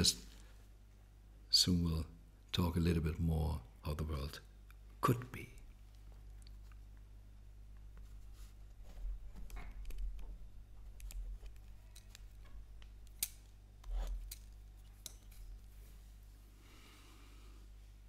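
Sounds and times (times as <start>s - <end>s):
steady low hum: 0.0s - 18.0s
small clicks and light knocks: 9.3s - 15.6s.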